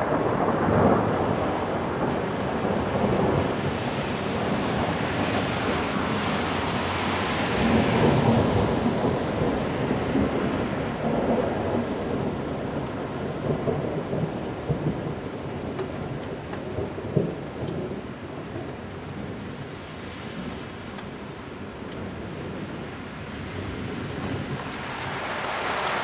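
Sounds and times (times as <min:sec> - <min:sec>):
rain falling: 0:00.0 - 0:26.0.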